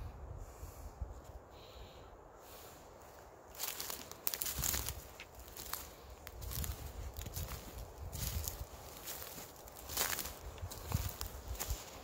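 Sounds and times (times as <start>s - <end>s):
footsteps crunching dry leaves: 2.9s - 12.0s.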